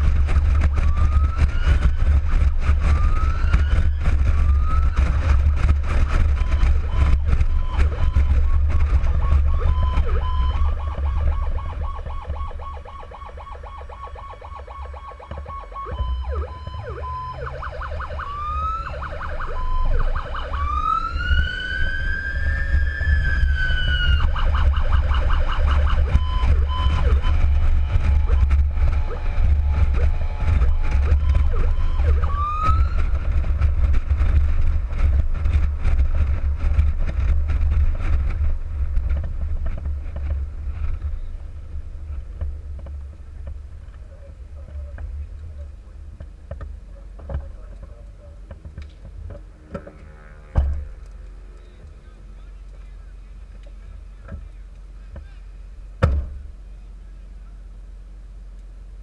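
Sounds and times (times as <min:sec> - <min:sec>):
electronic emergency siren: 0:00.0 - 0:35.6
vehicle driving rumble: 0:00.0 - 0:59.0.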